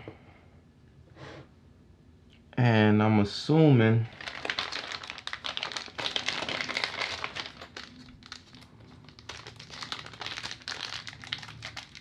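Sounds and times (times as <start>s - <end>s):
plastic bag crinkling: 4.1s - 12.0s.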